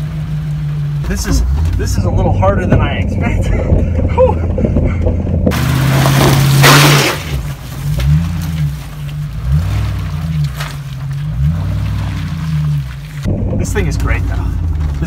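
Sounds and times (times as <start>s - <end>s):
engine revving: 0.0s - 15.0s
tyres spinning flinging mud: 1.1s - 15.0s.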